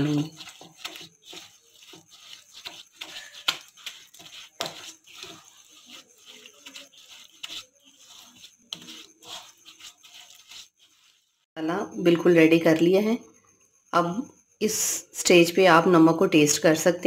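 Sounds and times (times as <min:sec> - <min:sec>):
spatula scraping paste in bowl: 0:00.0 - 0:11.6.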